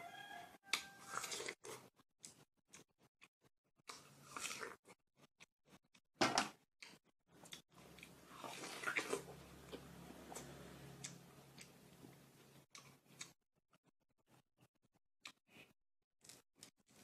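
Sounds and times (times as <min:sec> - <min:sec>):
wet crackly chewing: 0:06.8 - 0:13.4.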